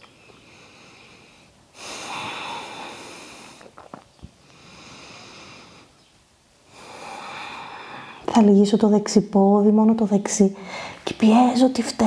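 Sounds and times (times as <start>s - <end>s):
woman breathing deeply: 0.2s - 3.7s, 4.4s - 6.0s, 6.7s - 8.3s, 10.6s - 11.1s.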